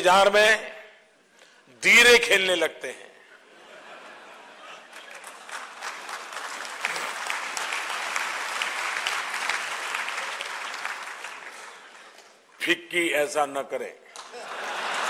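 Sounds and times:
audience applauding: 4.7 - 12.3.

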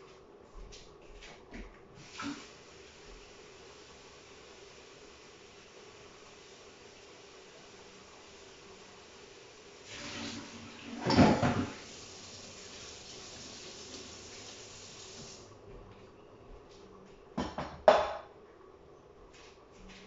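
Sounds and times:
tap water running into sink: 9.8 - 15.4
knocks on wooden cutting board: 17.4 - 18.2.

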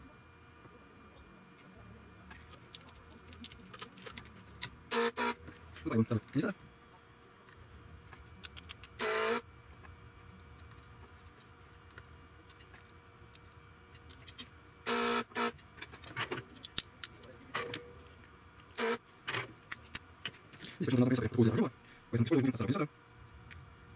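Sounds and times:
desoldering pump snapping: 11.9 - 17.8.

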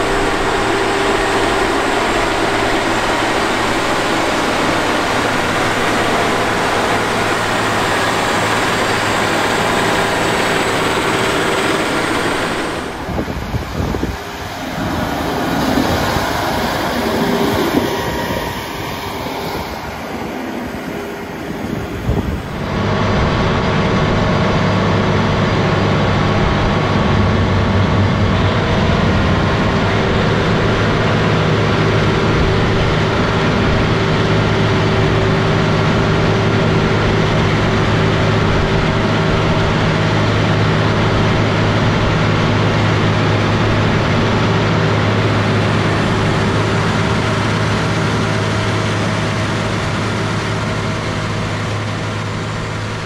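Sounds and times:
tractor diesel engine under load: 0.0 - 53.0
wind noise: 0.0 - 53.0.

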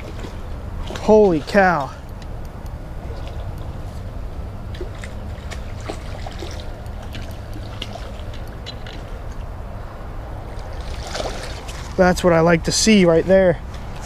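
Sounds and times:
water sloshing and splashing: 0.0 - 2.3, 2.9 - 12.6
steady low rumble: 0.0 - 14.0
light clicks: 1.8 - 3.8.

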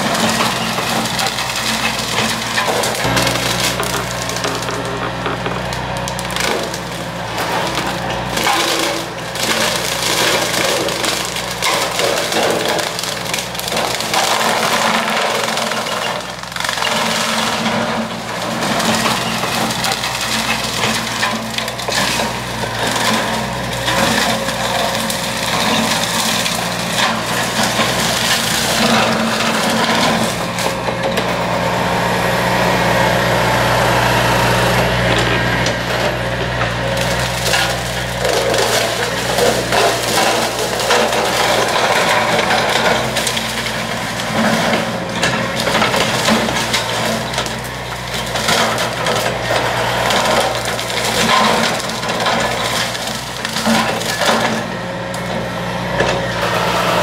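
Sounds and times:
excavator engine humming: 0.0 - 57.0
brush cutter chopping brush: 1.4 - 10.5.

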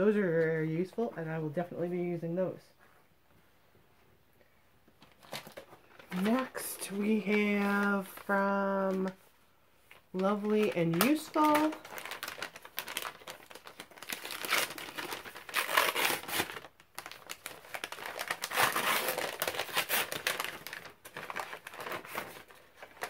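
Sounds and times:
wrapping paper rustling and crinkling: 5.0 - 23.0.

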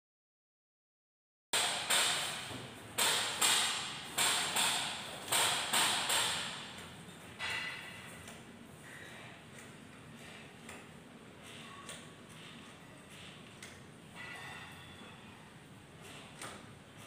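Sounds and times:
sharp ringing clacks: 14.2 - 15.1.

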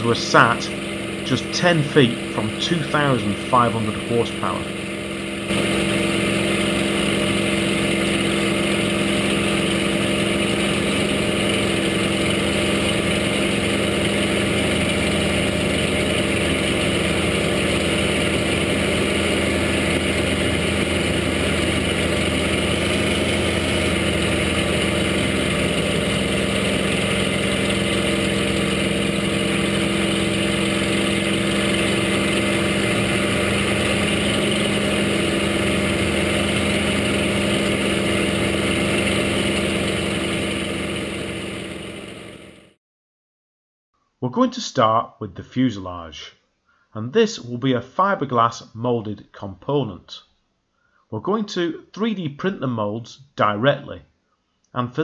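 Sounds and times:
aircraft engine drone: 0.0 - 42.8.

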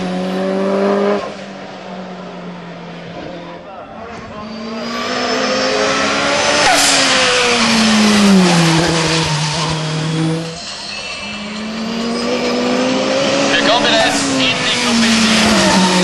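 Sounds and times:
race car accelerating past: 0.0 - 16.0.

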